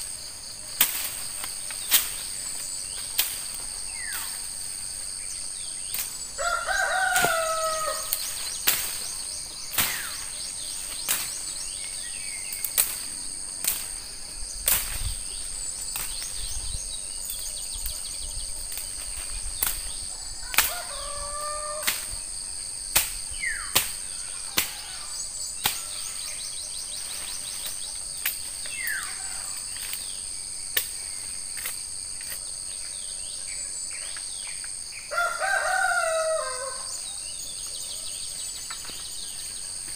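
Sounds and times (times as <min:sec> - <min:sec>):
insects droning: 0:00.0 - 0:39.9
woody stems snapping: 0:00.8 - 0:04.4, 0:05.9 - 0:06.2, 0:06.9 - 0:11.5, 0:12.5 - 0:14.0, 0:14.6 - 0:15.2, 0:15.8 - 0:16.4, 0:18.6 - 0:21.1, 0:21.8 - 0:22.2, 0:22.9 - 0:24.9, 0:25.6 - 0:26.0, 0:27.1 - 0:30.1, 0:30.7 - 0:31.0, 0:31.6 - 0:32.4
rooster crowing: 0:06.4 - 0:08.2, 0:20.1 - 0:21.9, 0:35.1 - 0:37.0.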